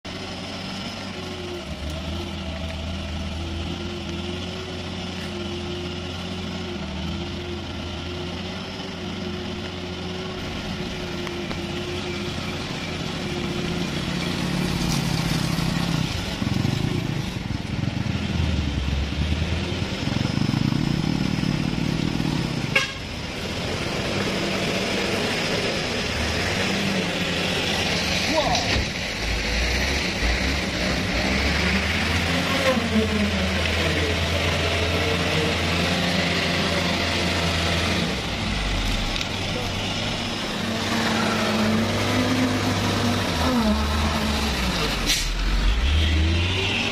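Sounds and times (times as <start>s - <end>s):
truck diesel engine straining: 0.1s - 46.9s.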